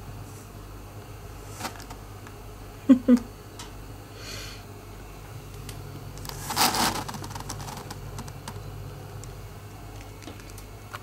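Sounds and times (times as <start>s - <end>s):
steady low hum: 0.0s - 11.0s
cardboard box rustling: 6.3s - 8.0s.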